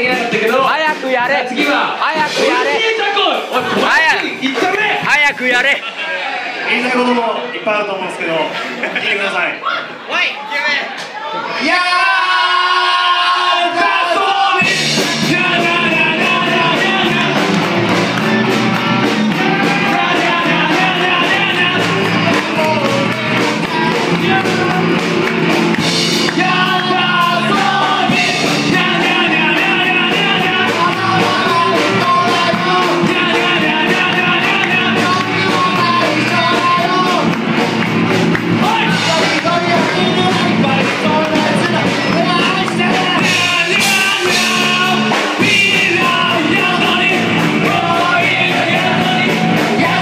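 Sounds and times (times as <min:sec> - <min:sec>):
drums: 0:00.0 - 0:06.0, 0:11.0 - 0:50.0
man singing into a microphone: 0:11.8 - 0:18.6, 0:19.3 - 0:25.2, 0:26.2 - 0:37.4, 0:38.6 - 0:50.0
electric bass: 0:14.6 - 0:50.0
electric guitar: 0:14.6 - 0:50.0.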